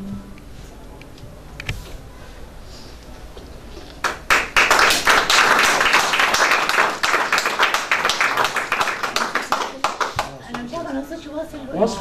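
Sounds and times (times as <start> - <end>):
audience applause: 4.0 - 10.7.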